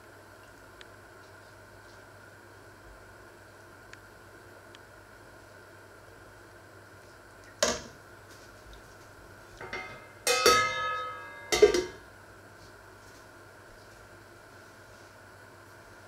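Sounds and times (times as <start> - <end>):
metal utensils clanking: 9.6 - 12.0
steel lid clanging on pot: 9.6 - 12.0.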